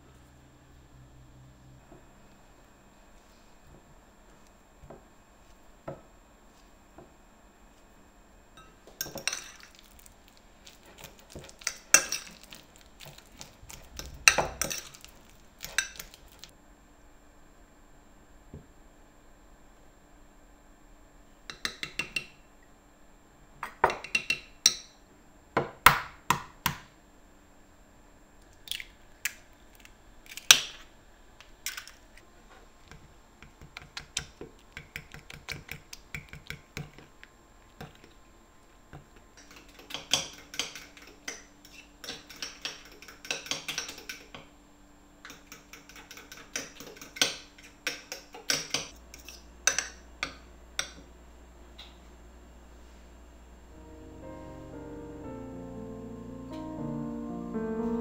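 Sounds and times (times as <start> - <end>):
spoon scraping ceramic bowl: 10.6 - 16.5.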